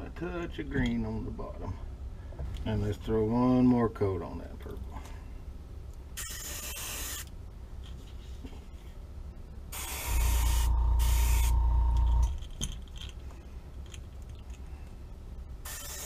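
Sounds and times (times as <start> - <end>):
low hum with steady whine: 0.0 - 16.0
airbrush spraying: 6.2 - 7.3, 9.8 - 12.1, 15.7 - 16.0.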